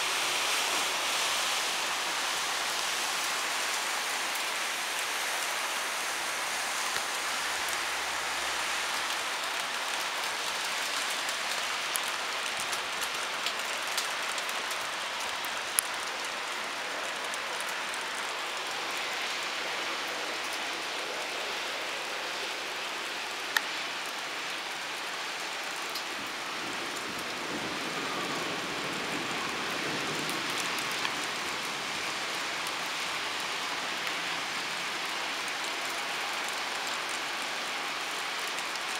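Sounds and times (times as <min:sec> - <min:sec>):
torrential rain on tarmac: 0:00.0 - 0:38.9
raindrops ticking close by: 0:06.7 - 0:21.2, 0:22.7 - 0:38.9.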